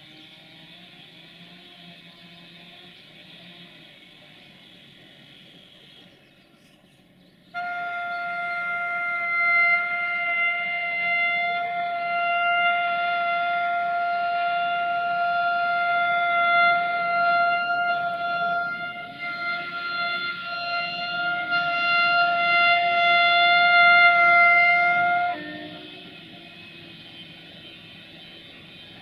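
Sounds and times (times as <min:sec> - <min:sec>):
locomotive air horn: 0:07.5 - 0:29.0.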